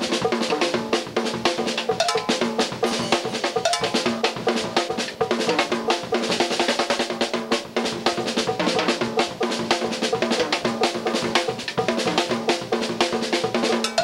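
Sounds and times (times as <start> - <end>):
fast drum kit groove: 0.0 - 14.0
cowbell pattern: 1.8 - 5.8, 13.7 - 14.0.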